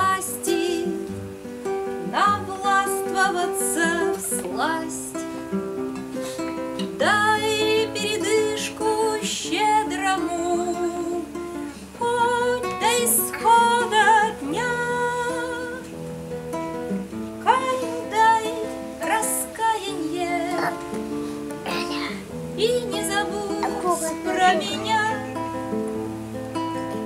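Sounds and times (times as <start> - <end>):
woman singing: 0.0 - 1.2, 2.0 - 5.4, 6.9 - 16.0, 17.4 - 21.2, 21.8 - 25.6
acoustic guitar: 0.0 - 27.0.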